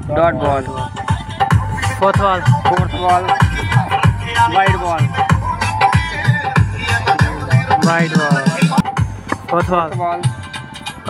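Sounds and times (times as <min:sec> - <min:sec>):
vocal melody: 0:02.5 - 0:09.0.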